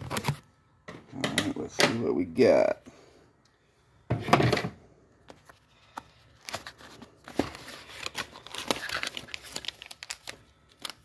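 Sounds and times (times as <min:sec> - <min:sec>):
cardboard tearing: 0:07.5 - 0:11.0.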